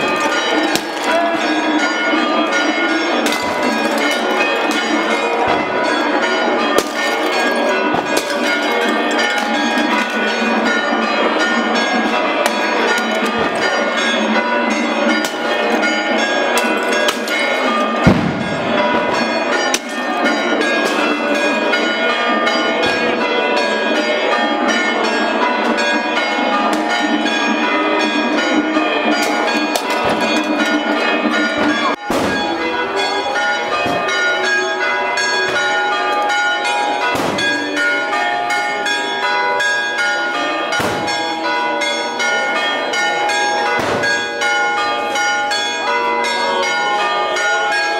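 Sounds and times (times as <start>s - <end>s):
church bells pealing: 0.0s - 47.9s
clay pots smashing on stone: 6.8s - 10.2s.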